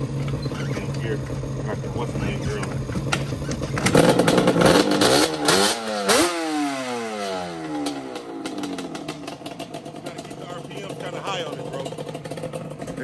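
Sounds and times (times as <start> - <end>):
two-stroke engine revving: 0.0 - 13.0.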